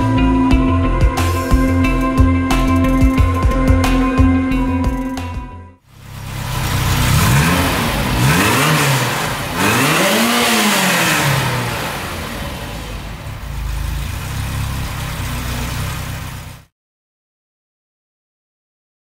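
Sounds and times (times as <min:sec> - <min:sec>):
car engine revving and idling: 0:05.8 - 0:16.7.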